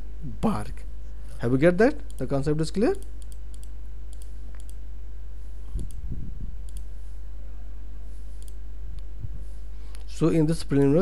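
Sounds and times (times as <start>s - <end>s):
low electrical hum: 0.0s - 11.0s
computer mouse clicking: 3.0s - 4.8s, 5.8s - 6.0s, 6.6s - 6.9s, 8.4s - 8.6s.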